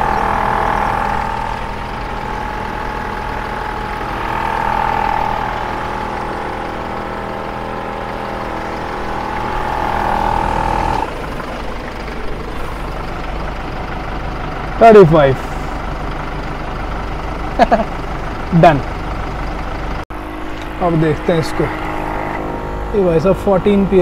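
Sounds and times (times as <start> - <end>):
low hum: 0.0 - 14.5, 19.3 - 24.0
air compressor whining: 0.0 - 24.0.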